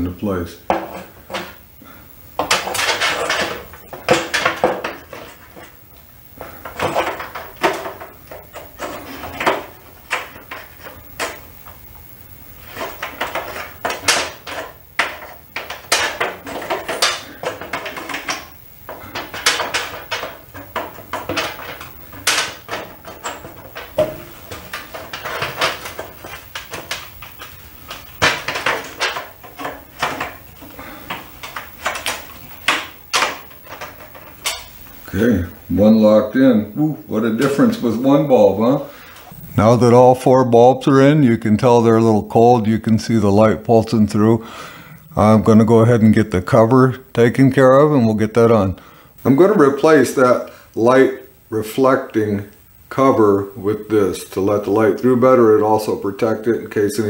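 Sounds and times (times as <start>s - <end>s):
tube clicking into lamp holders: 12.7s - 34.8s.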